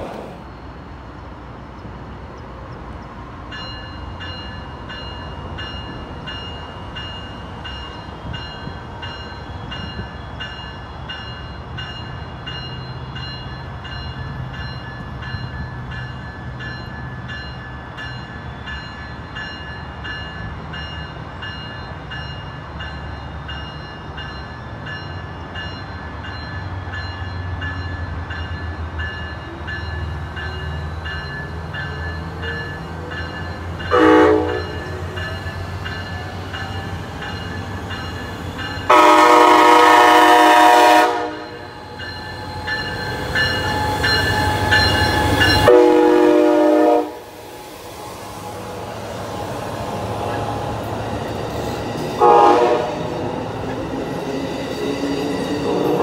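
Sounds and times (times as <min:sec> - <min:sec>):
diesel locomotive engine rumble: 0:00.0 - 0:56.0
train bell ringing: 0:03.5 - 0:56.0
multi-note train horn: 0:33.9 - 0:35.0, 0:38.9 - 0:41.8, 0:45.6 - 0:47.4, 0:52.2 - 0:53.1.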